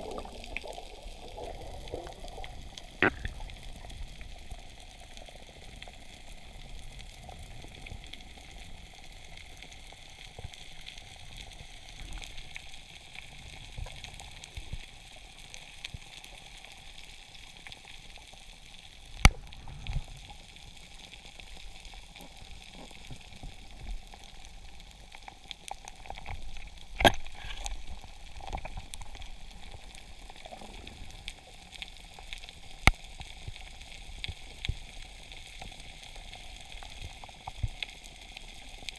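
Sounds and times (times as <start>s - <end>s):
crackling hiss of snapping shrimp: 0.0s - 38.9s
sharp underwater knocks: 27.0s - 27.4s.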